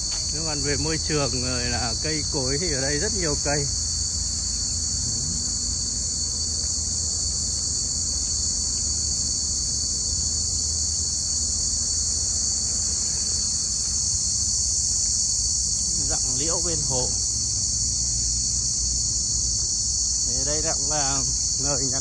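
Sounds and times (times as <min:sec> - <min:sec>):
insects chorus: 0:00.0 - 0:22.0.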